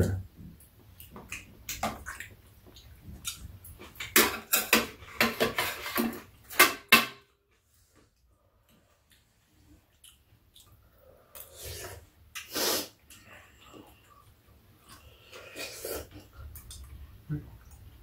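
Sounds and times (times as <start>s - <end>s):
eating sounds: 0.5s - 4.0s, 8.9s - 18.0s.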